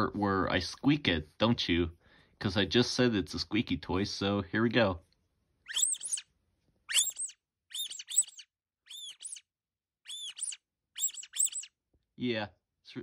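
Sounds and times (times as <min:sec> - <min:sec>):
squeaky toy squeaks: 0:05.7 - 0:06.2, 0:06.9 - 0:09.4, 0:10.0 - 0:11.7.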